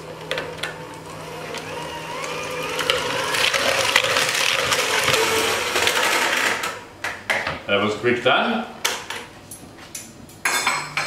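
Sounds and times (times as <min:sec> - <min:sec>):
electric hand mixer whirring: 0:00.0 - 0:06.8.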